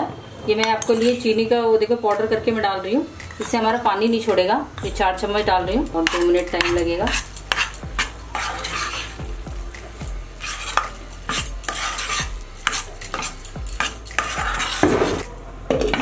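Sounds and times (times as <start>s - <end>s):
spatula scraping and knocking pan: 5.7s - 16.0s.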